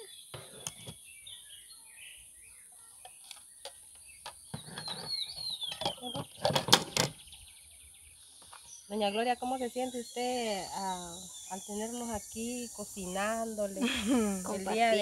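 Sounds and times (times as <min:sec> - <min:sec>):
bird chirping: 0:00.0 - 0:15.0
insect drone: 0:09.3 - 0:15.0.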